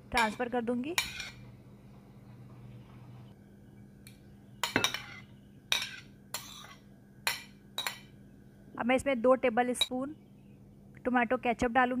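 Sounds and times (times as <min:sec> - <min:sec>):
spoon clinking on ceramic plate: 0:04.6 - 0:08.1.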